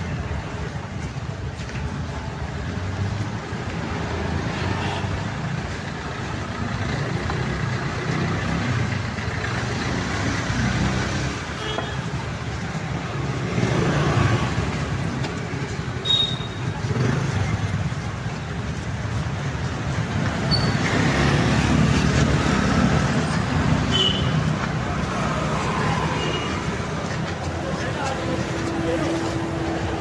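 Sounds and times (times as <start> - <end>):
traffic rumble: 0.0 - 30.0.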